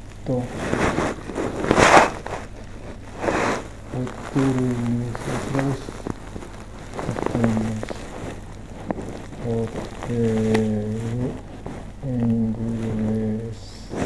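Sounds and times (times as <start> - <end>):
man humming low tones: 0.0 - 0.7, 3.8 - 6.2, 6.9 - 8.2, 9.3 - 14.0.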